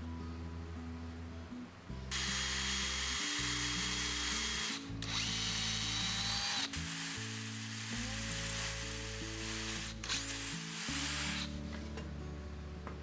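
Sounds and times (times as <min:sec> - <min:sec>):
background music: 0:00.0 - 0:13.0
power drill boring into plywood: 0:02.1 - 0:11.5.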